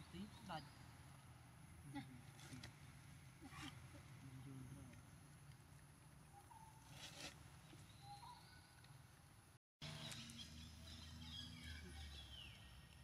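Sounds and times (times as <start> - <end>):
faint high chirping calls: 6.3 - 7.0, 7.6 - 8.9.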